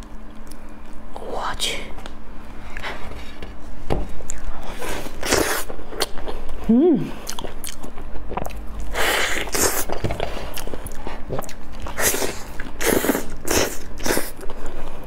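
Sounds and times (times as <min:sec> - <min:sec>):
wet mouth sounds of eating: 0:04.2 - 0:15.0.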